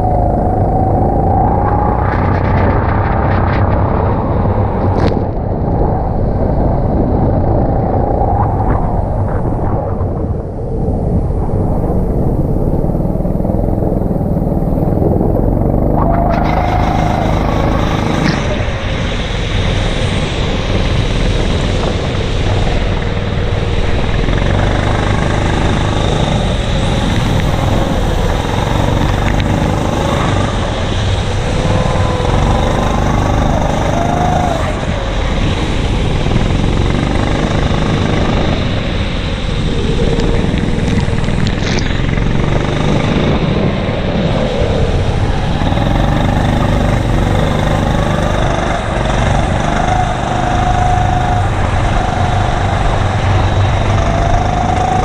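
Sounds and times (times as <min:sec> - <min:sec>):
kart engine revving: 0:12.7 - 0:18.9, 0:23.1 - 0:39.1, 0:40.4 - 0:44.1, 0:45.2 - 0:55.0.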